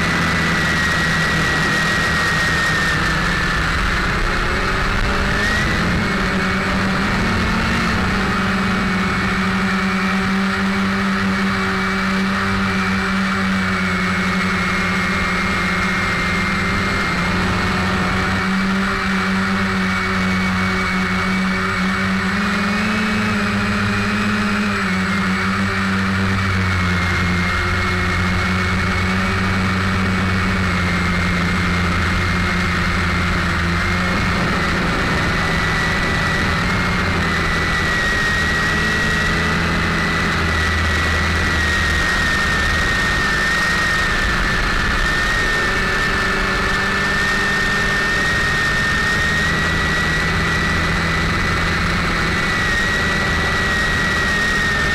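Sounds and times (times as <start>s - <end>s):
drone motors whining: 0.0s - 54.9s.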